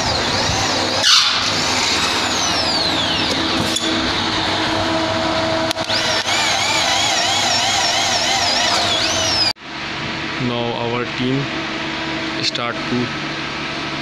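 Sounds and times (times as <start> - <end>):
electric drill boring through metal: 0.0 - 9.6.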